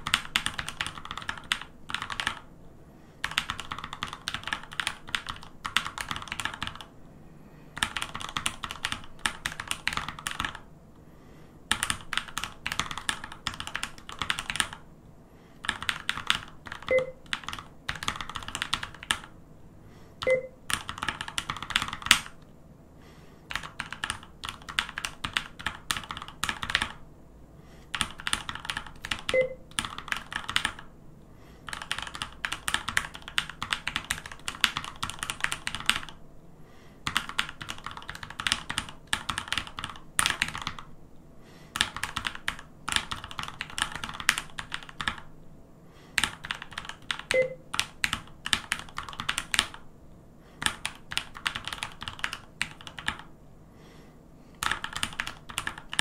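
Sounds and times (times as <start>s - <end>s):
mechanical keyboard typing: 0.0s - 2.5s, 3.2s - 6.9s, 7.8s - 10.7s, 11.7s - 14.8s, 15.6s - 19.3s, 20.2s - 22.4s, 23.5s - 27.0s, 27.9s - 30.9s, 31.6s - 36.2s, 37.0s - 40.9s, 41.7s - 45.3s, 46.2s - 49.8s, 50.6s - 53.3s, 54.6s - 56.0s.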